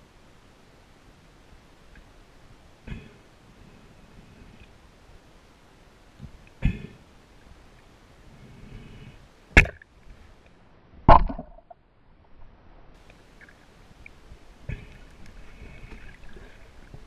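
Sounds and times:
speargun knocks underwater: 0:11.1 - 0:11.7.

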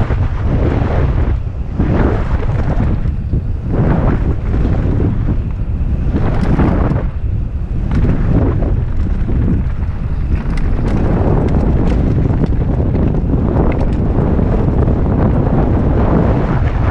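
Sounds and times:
wind buffeting microphone: 0:00.0 - 0:16.9
bike knocks and rattles: 0:02.8 - 0:15.9.

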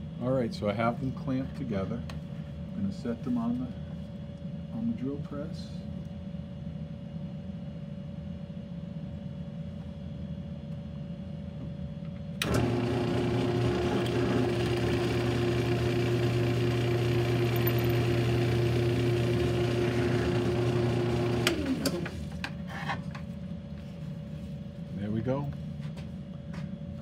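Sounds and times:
drill bit boring through wood: 0:12.4 - 0:21.7
drill press motor running: 0:12.4 - 0:22.6.

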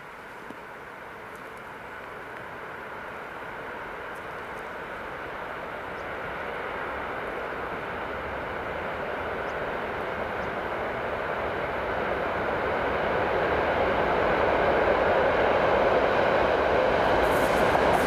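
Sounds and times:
electric train rushing noise: 0:04.8 - 0:18.0.

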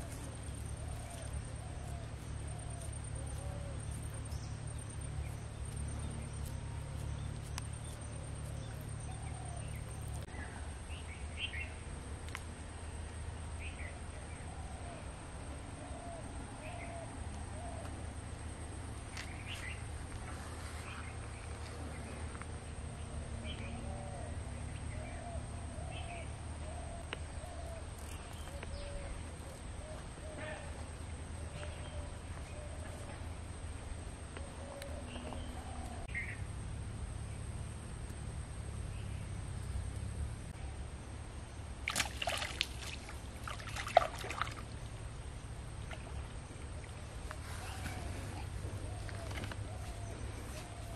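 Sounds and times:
steady low rumble: 0:00.0 - 0:41.9
water splashing: 0:41.8 - 0:45.0.

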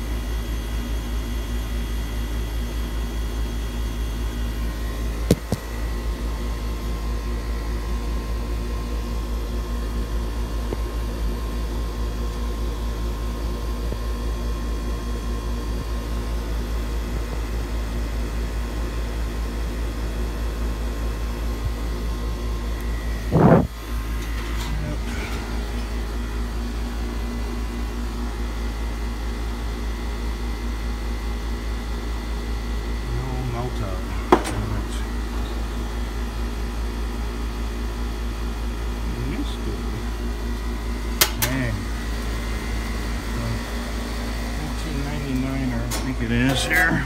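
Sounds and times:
machine hum and whir: 0:00.0 - 0:47.0
low rumble: 0:23.2 - 0:23.8
sharp click: 0:41.2 - 0:41.6.

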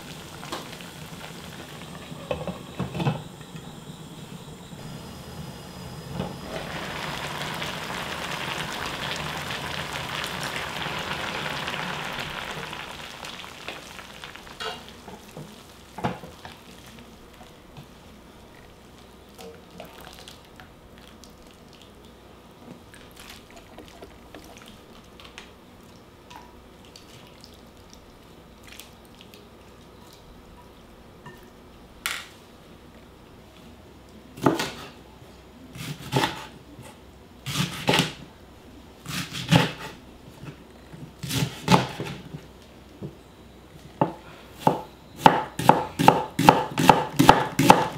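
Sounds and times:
water boiling and bubbling: 0:00.0 - 0:30.3
knife chopping on wooden board: 0:44.6 - 0:47.9.

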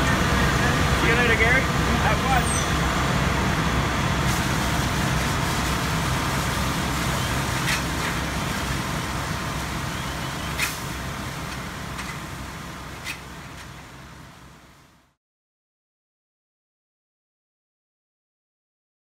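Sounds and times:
truck engine idling: 0:00.0 - 0:14.8.

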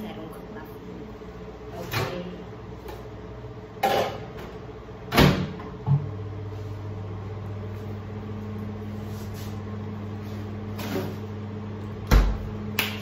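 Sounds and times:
microwave oven humming: 0:00.0 - 0:13.0
door shutting with a thud: 0:05.1 - 0:05.6.

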